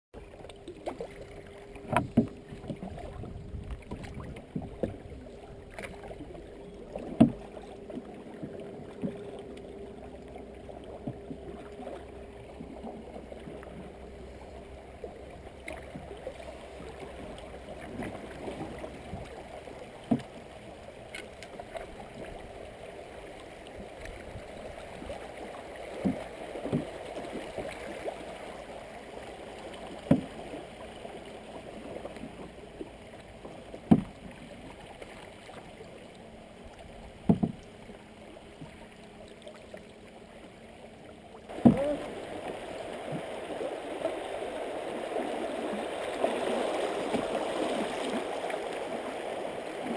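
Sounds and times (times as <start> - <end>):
water swishing around paddle: 0.2 - 49.9
canoe knocks: 1.8 - 3.0, 7.0 - 7.4, 20.0 - 20.4, 26.0 - 27.0, 30.0 - 30.4, 33.8 - 34.4, 37.2 - 37.7, 41.5 - 42.2.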